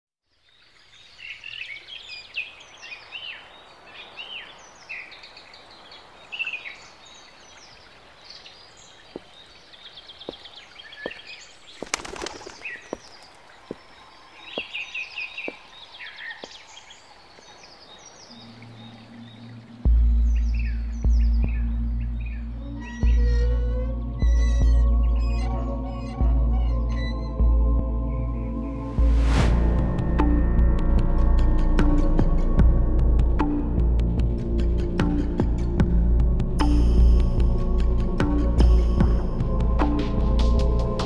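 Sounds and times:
songbirds chirping: 0.2s - 29.5s, 31.4s - 41.0s
faint outdoor hiss: 0.3s - 23.2s
low steady drone: 18.4s - 41.0s.

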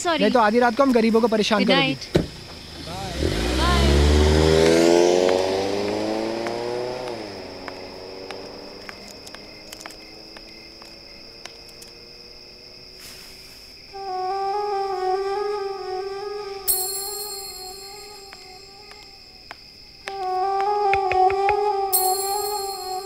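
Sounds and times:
car driving off: 1.8s - 13.3s
soft flute-like music: 13.9s - 23.0s.

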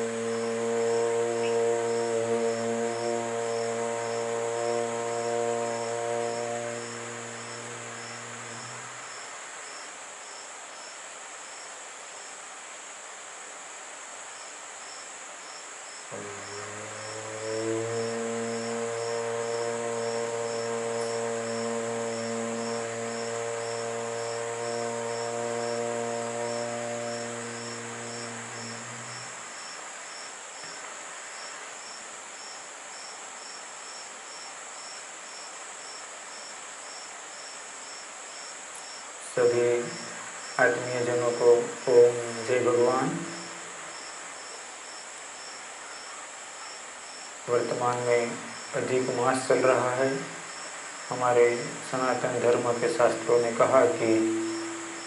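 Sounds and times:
sustained low musical note: 0.0s - 9.0s, 16.1s - 29.4s, 51.2s - 55.0s
low droning tone: 0.0s - 9.1s, 16.1s - 29.5s, 51.2s - 55.0s
constant high hiss: 0.0s - 55.0s
insects chirping: 0.0s - 55.0s.

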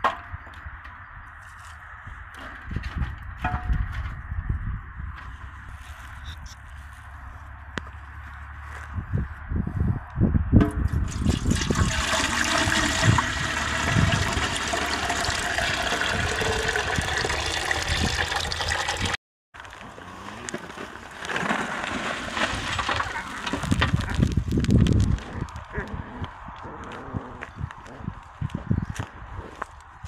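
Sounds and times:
water rushing: 11.1s - 19.2s.

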